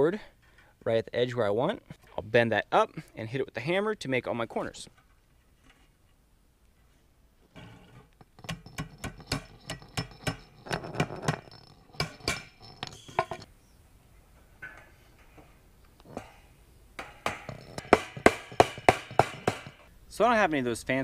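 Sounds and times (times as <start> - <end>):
hammer tapping wire mesh: 17.0 - 19.9.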